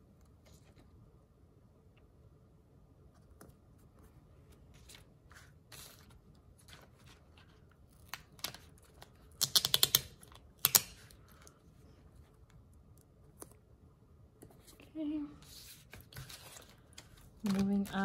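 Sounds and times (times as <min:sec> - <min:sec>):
paper rustling: 0:04.5 - 0:09.3, 0:14.5 - 0:18.0.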